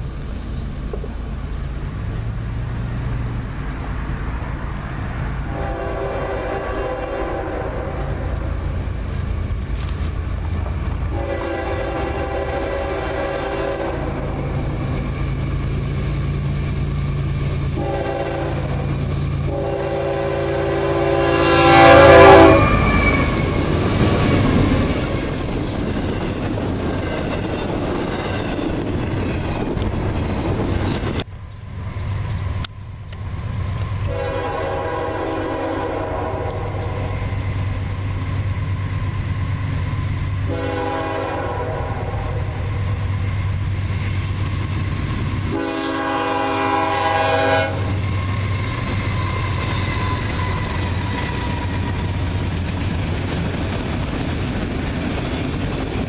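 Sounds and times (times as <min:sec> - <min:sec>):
locomotive air horn blasts: 0:05.4 - 0:08.3, 0:11.1 - 0:14.5, 0:17.7 - 0:23.6, 0:34.1 - 0:37.1, 0:40.5 - 0:42.6, 0:45.5 - 0:48.0
freight cars rumbling and clattering: 0:22.8 - 0:34.2, 0:47.8 - 0:56.0.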